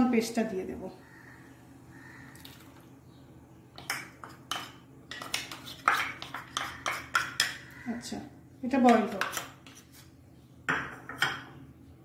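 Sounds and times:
spoon scraping a bowl: 3.8 - 7.8, 8.8 - 10.2.

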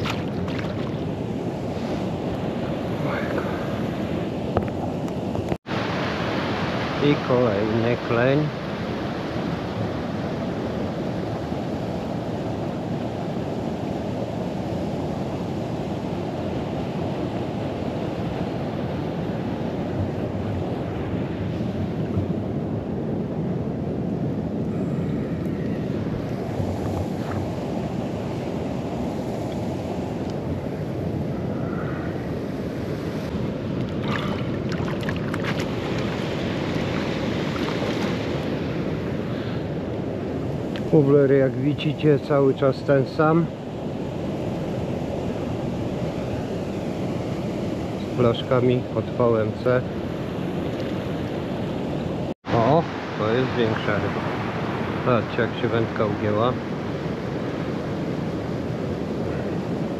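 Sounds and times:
flowing water rushing: 0.0 - 22.8, 25.2 - 43.6, 52.4 - 56.6
wind on microphone: 0.0 - 59.9.

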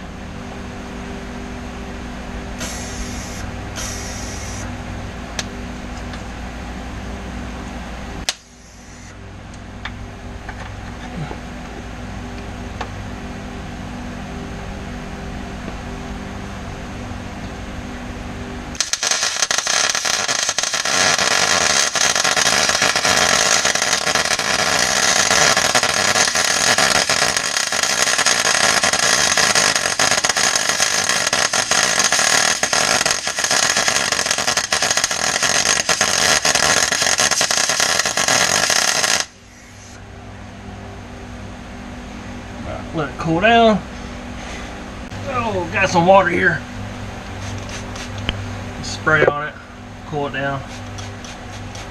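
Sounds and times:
steady hum: 0.0 - 51.9
arc welder crackling hiss: 2.6 - 4.7, 8.2 - 9.2, 18.7 - 40.0, 47.2 - 48.4, 50.5 - 51.9.

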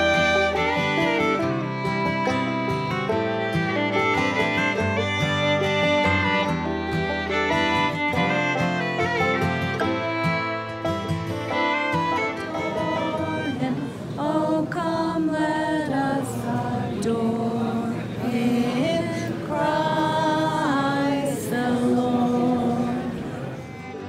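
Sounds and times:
choir singing a cappella: 12.9 - 23.6.

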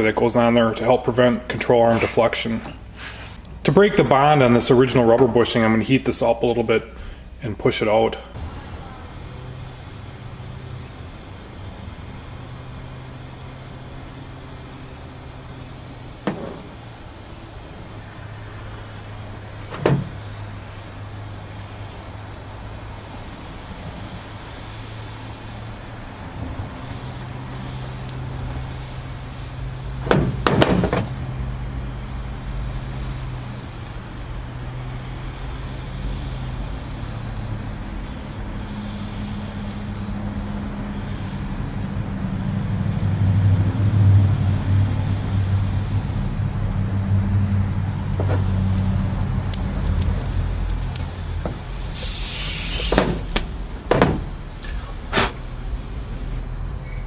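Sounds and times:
steady low hum: 0.0 - 32.9
torch flame roaring: 8.3 - 56.9
sharp metal knocks: 16.2 - 16.8, 30.0 - 31.1.

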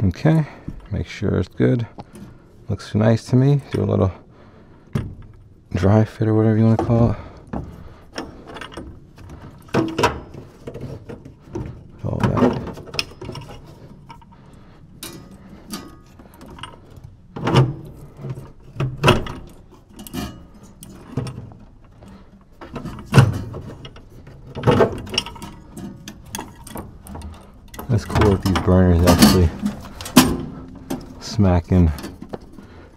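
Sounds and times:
metal pipe knocking and clanking: 4.9 - 5.4, 6.6 - 14.4, 15.0 - 32.6.

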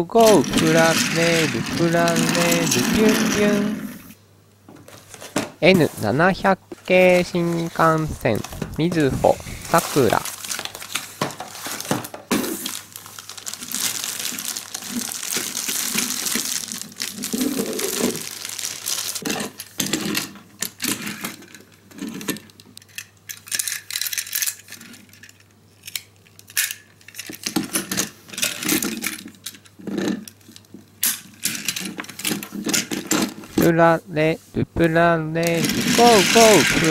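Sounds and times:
plastic toy train cars clacking: 0.1 - 3.8, 35.4 - 36.9
packaging rustling: 0.2 - 3.7, 6.7 - 19.7, 35.5 - 36.9.

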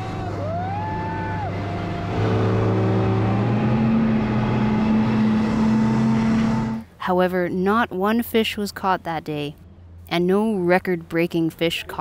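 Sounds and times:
brief high wail: 0.0 - 2.2
outboard motor droning: 0.0 - 6.9.

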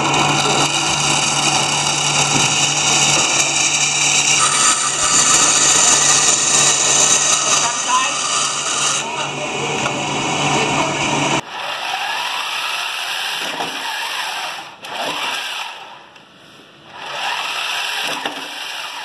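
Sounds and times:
electric motors whirring: 0.0 - 12.4
band saw cutting wood: 0.0 - 15.8, 17.1 - 19.0.

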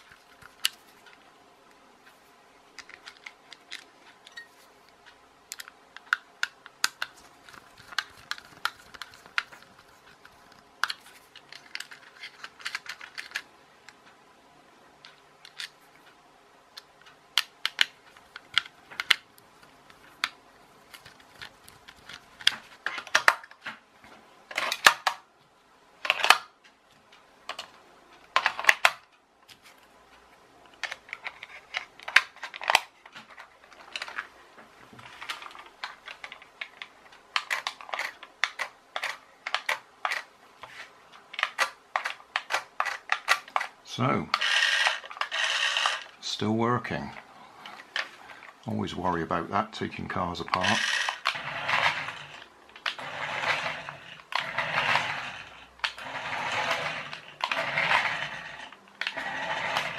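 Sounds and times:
plastic clicks and clatter: 2.8 - 14.1, 15.0 - 15.8, 16.8 - 25.2, 26.0 - 29.9, 30.6 - 34.3, 34.9 - 43.8, 50.5 - 59.9
screwdriver turning screws: 44.4 - 46.1, 50.5 - 59.9.

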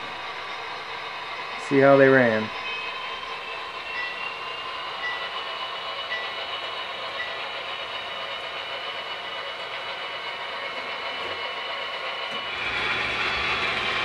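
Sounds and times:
faint high whine: 0.0 - 6.5
model train wheels rolling: 0.0 - 14.0
brief wheel squeaks: 2.6 - 5.5.

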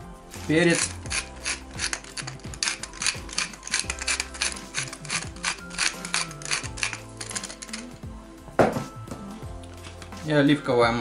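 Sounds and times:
pepper mill grinding: 0.4 - 8.0.

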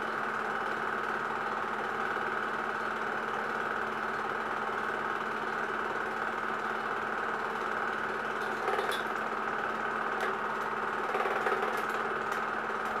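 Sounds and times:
film projector clatter: 0.0 - 13.0
constant hum: 5.4 - 13.0.

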